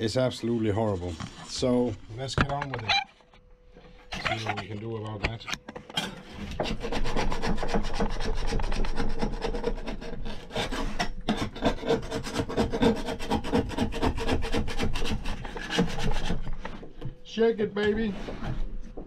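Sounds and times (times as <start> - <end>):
scraper blade rasping on metal: 6.2 - 16.6.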